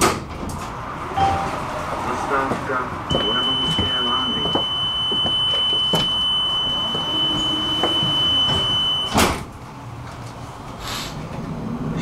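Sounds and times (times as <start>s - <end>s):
tram door warning beep: 1.2s - 1.8s, 3.1s - 9.4s.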